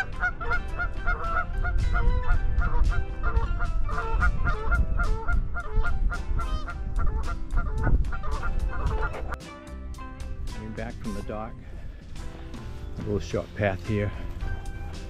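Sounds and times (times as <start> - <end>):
geese honking: 0.0 - 9.4.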